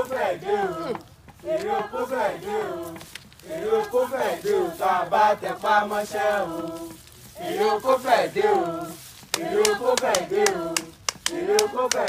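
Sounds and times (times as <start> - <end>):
person chanting: 0.0 - 12.0
handclaps: 9.2 - 12.0.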